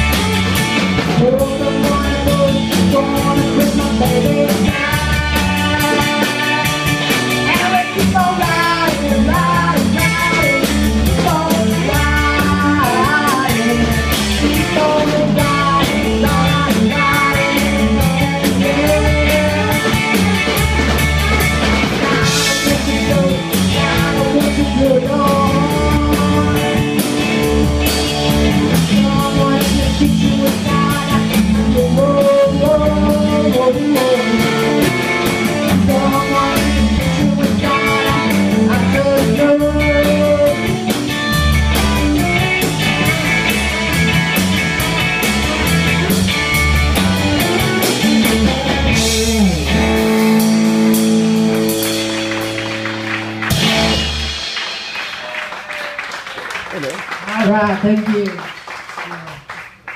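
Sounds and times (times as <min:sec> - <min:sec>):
person singing: 0:00.0 - 0:27.6, 0:28.4 - 0:43.5, 0:47.3 - 0:51.8
punk band playing live: 0:00.0 - 0:59.6.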